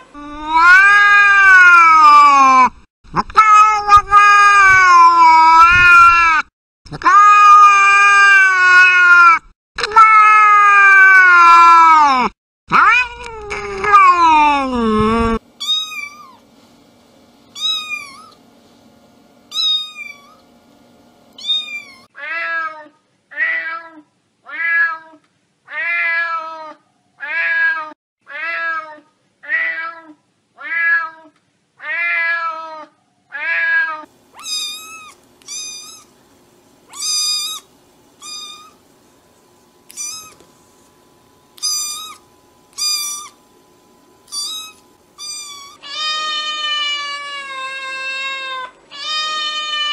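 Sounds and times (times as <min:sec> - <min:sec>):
adult cat meowing: 0:00.2 - 0:06.4, 0:07.0 - 0:14.9, 0:21.4 - 0:36.1, 0:38.2 - 0:38.8, 0:39.9 - 0:40.4, 0:41.6 - 0:42.2, 0:44.3 - 0:49.9
kitten mewing: 0:00.3 - 0:16.4, 0:17.6 - 0:18.4, 0:21.4 - 0:22.7, 0:33.4 - 0:36.1, 0:36.9 - 0:38.8, 0:39.9 - 0:40.4, 0:41.6 - 0:43.4, 0:44.3 - 0:49.9.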